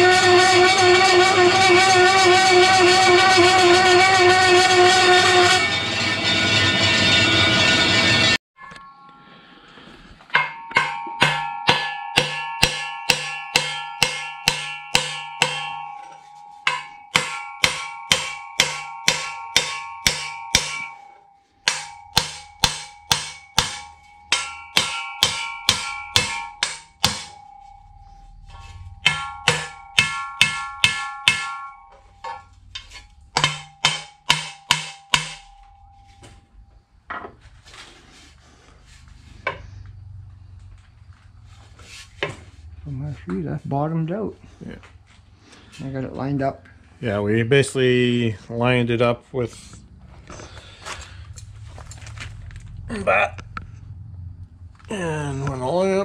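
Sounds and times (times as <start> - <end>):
hammer ringing on metal: 10.3 - 36.1.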